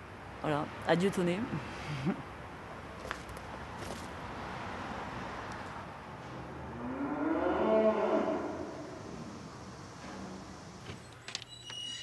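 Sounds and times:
cow mooing: 6.7s - 8.9s.

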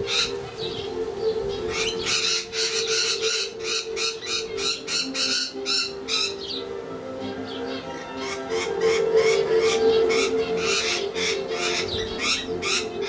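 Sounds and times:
bird squawking: 0.0s - 6.7s, 7.5s - 13.0s.

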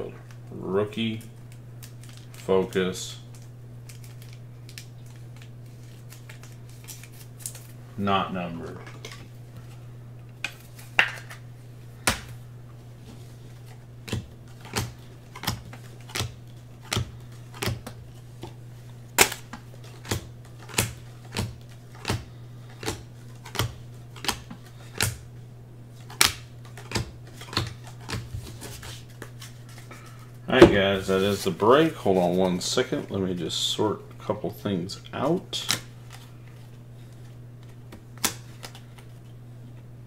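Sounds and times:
trading cards flicked clicking: 14.0s - 18.5s, 19.2s - 25.2s.

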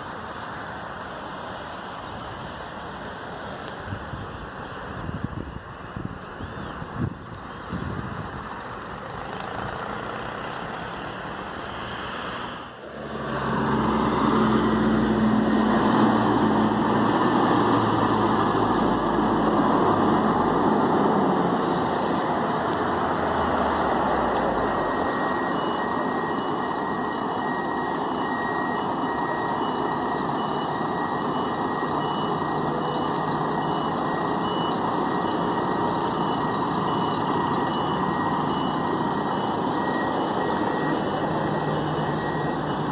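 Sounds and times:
bus engine rumbling: 0.0s - 42.9s
reversing alarm beeps: 12.5s - 12.9s, 23.1s - 42.9s.

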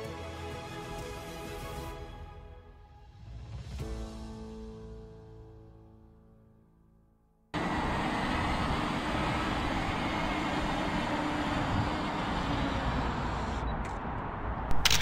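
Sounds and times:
background music: 0.0s - 7.4s.

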